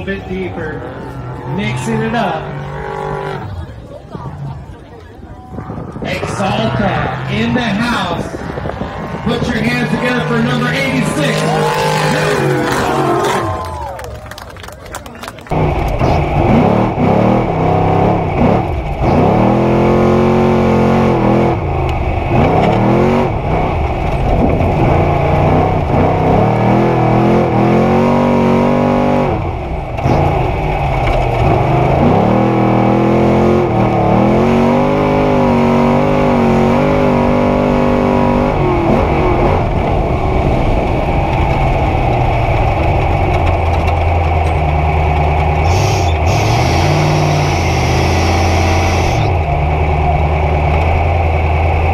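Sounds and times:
truck engine revving: 0.0 - 51.9.

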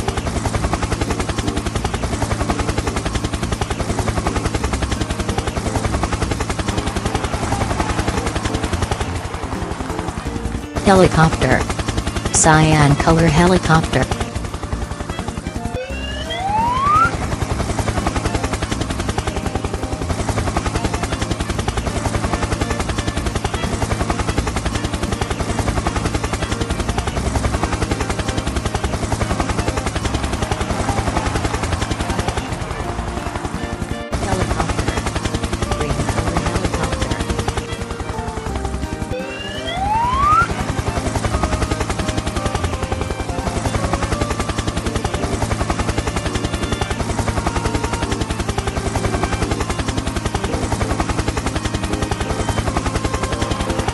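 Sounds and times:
background music: 0.0 - 53.9
helicopter rotor chopping: 0.0 - 53.9
rising whistle-like tone: 15.8 - 17.2, 39.2 - 40.5.

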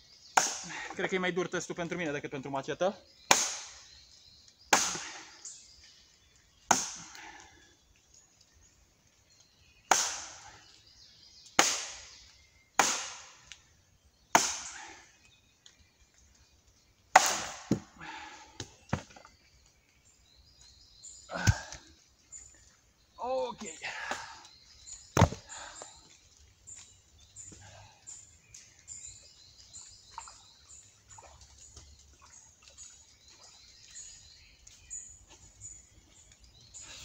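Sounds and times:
machete chopping into log: 0.4 - 0.7, 3.3 - 3.8, 4.7 - 5.2, 6.7 - 7.1, 9.9 - 10.4, 11.6 - 12.2, 12.8 - 13.4, 14.3 - 14.8, 17.1 - 17.9, 25.1 - 25.5.

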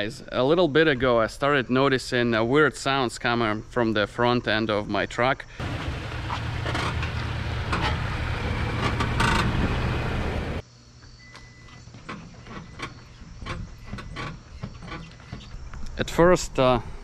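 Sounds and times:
truck body mount squeaking: 5.6 - 10.6, 11.6 - 15.6.

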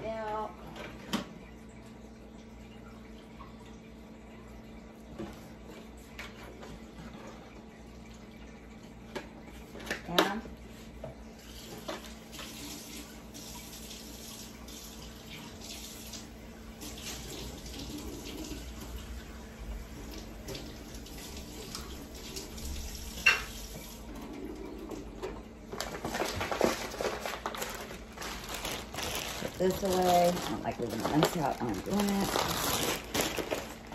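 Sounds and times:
water running from a tap: 0.0 - 33.9
handling sounds: 25.8 - 33.9.

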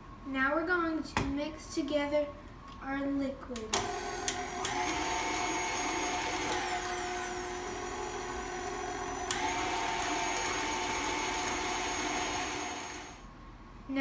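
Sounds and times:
stand mixer motor whining: 3.8 - 13.2.

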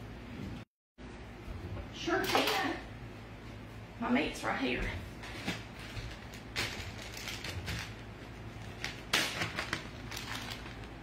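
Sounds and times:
plastic bag rustling: 5.2 - 11.0.

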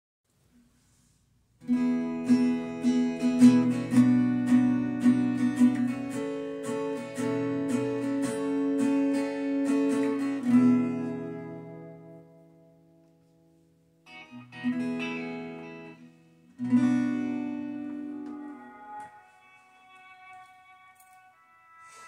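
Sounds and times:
acoustic guitar strumming: 1.6 - 22.0.

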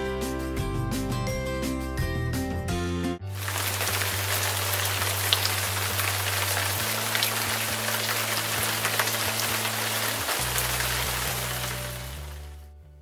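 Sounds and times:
rain-like hiss: 3.3 - 12.6.

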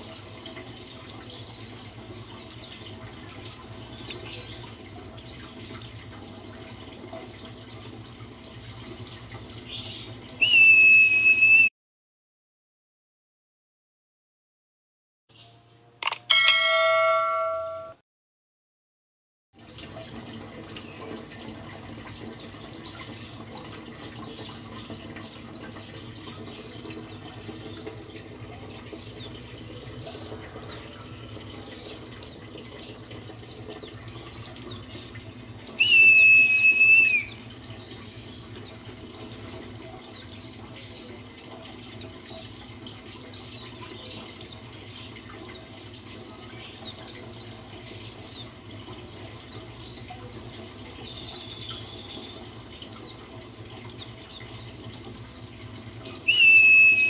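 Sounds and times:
bird twittering chirps: 35.5 - 38.4, 56.0 - 57.0
bird whistled note: 35.8 - 37.4, 56.2 - 57.0.

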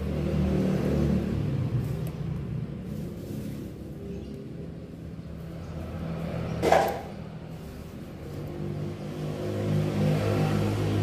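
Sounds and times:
engine rumble: 0.0 - 11.0
loud scrape: 2.8 - 3.9.

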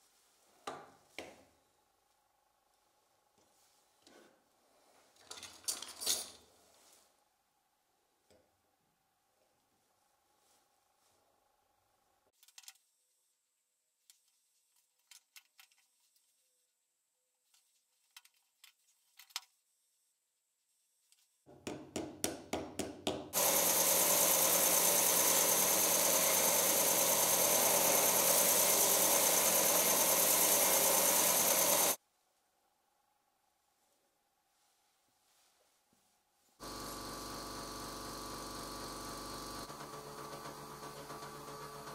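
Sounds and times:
belt sander sanding hiss: 23.4 - 32.0.

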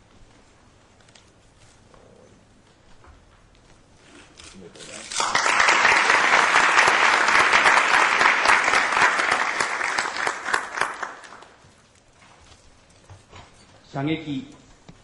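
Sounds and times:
audience applauding: 5.1 - 11.6.

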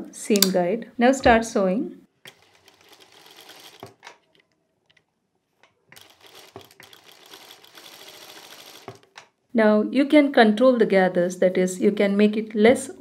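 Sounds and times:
sewing machine stitching: 2.2 - 4.5, 5.9 - 9.3
small clicks: 2.2 - 7.8.

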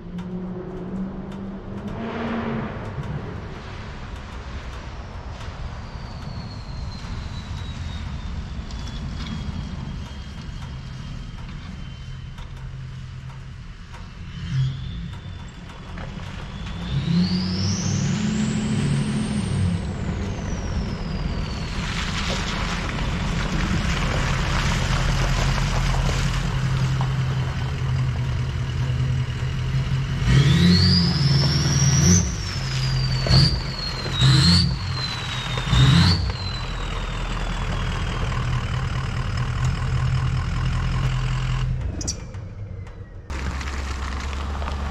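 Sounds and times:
pickup truck engine with whine: 0.0 - 44.9
tyres crunching over gravel: 20.5 - 39.7, 43.3 - 44.9.

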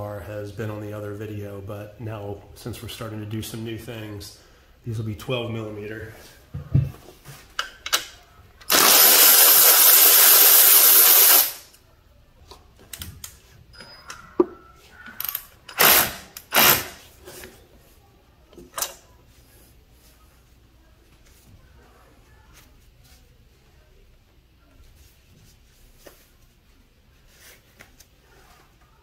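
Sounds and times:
power tool running: 8.7 - 11.6, 15.8 - 17.0.

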